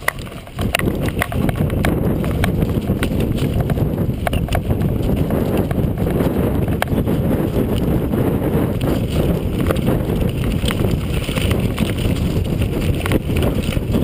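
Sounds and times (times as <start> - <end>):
sharp clicks and knocks: 0.0 - 4.7
wind buffeting microphone: 0.0 - 14.0.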